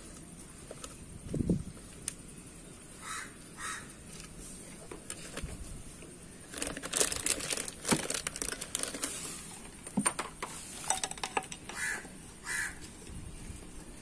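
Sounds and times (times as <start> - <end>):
plastic sheeting crinkling: 4.1 - 9.7.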